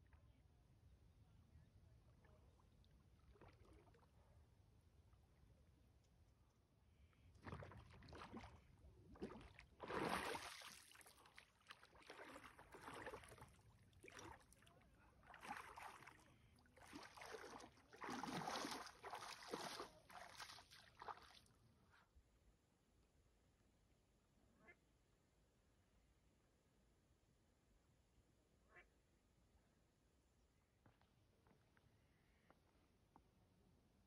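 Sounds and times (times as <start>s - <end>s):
water splashing around legs: 7.4s - 14.6s, 15.2s - 21.4s.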